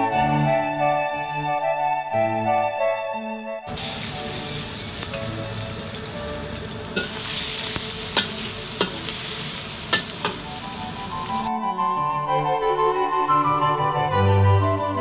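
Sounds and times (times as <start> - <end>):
spatula scraping a wok: 3.7 - 11.4
shallots sizzling in hot oil: 3.7 - 11.5.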